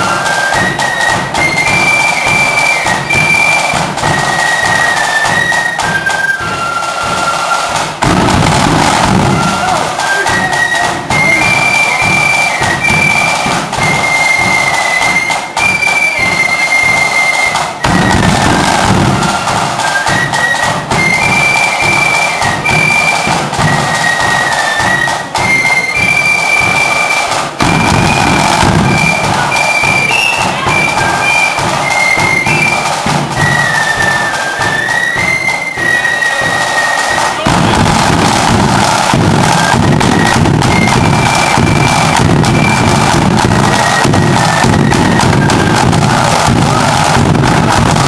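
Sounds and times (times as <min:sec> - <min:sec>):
flute melody: 0:00.0 - 0:48.0
rapid snare drum strokes: 0:00.0 - 0:48.0
bass drum beat: 0:07.8 - 0:11.2, 0:27.6 - 0:33.4, 0:37.3 - 0:48.0.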